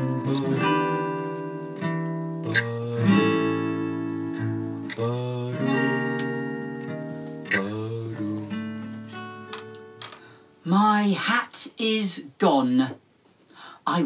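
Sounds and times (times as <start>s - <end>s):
guitar sliding notes: 0.0s - 10.6s
acoustic guitar strumming chords: 0.0s - 10.9s.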